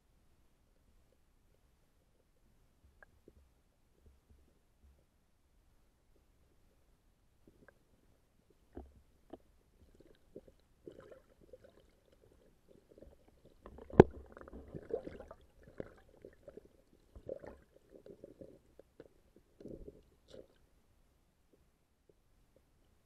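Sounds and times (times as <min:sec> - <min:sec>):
muffled underwater knocks and clicks: 0:02.1 - 0:05.1, 0:08.5 - 0:11.1, 0:12.9 - 0:20.6.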